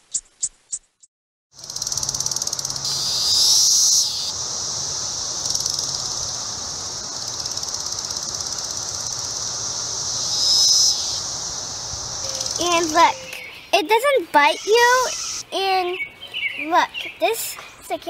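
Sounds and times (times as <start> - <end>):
cicadas buzzing: 1.5 - 18.0.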